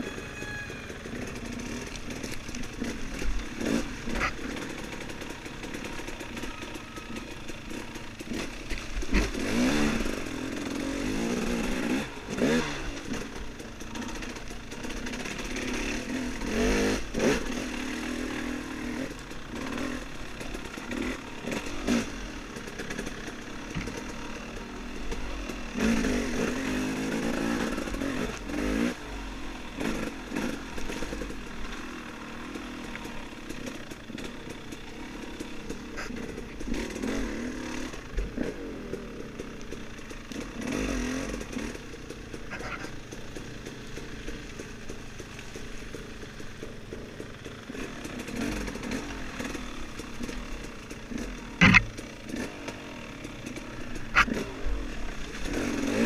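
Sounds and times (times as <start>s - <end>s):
dirt bike engine revving: 0.0s - 56.0s
knocks and clatter: 51.1s - 52.5s.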